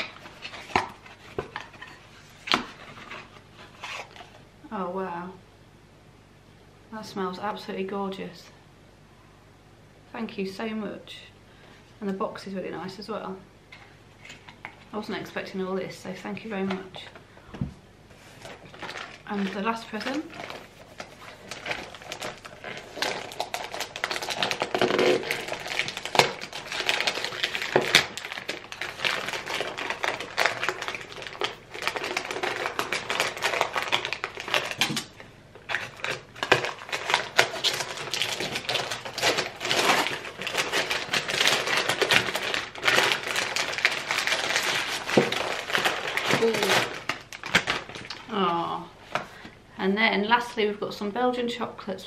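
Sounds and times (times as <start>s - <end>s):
wrapping paper tearing: 18.3s - 35.1s, 35.7s - 48.4s.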